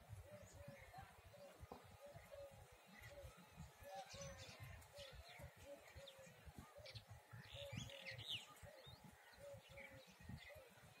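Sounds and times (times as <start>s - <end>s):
small birds chirping: 0.1s - 11.0s.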